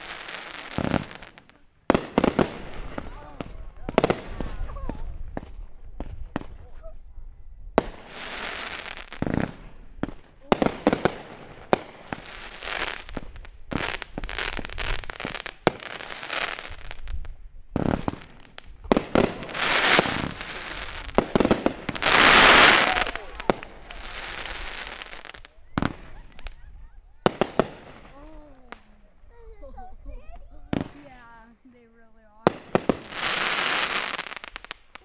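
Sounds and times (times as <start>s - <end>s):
sparks crackling and hissing: 0.0s - 6.5s, 7.8s - 26.5s, 32.5s - 35.0s
fireworks bangs: 0.0s - 6.8s, 7.7s - 29.2s, 30.7s - 31.6s, 32.3s - 35.0s.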